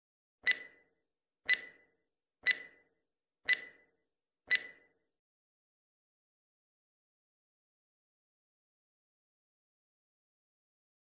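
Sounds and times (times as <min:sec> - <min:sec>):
sharp clock ticks with ringing tail: 0:00.4 - 0:02.9, 0:03.5 - 0:03.9, 0:04.5 - 0:05.0.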